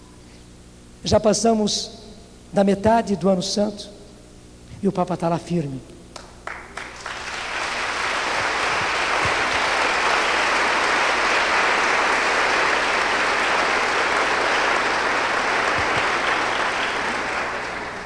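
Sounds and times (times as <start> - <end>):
crowd applauding: 6.2 - 18.0.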